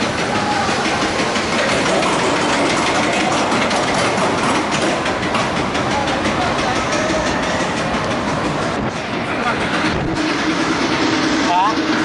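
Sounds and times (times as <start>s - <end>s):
roller coaster rattling on track: 0.0s - 12.0s
fast repeated clicks: 0.9s - 6.4s.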